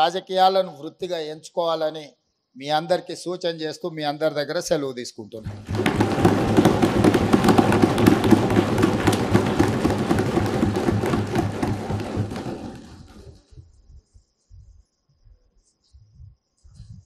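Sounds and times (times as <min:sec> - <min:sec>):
audience applause: 0:05.5 - 0:13.3.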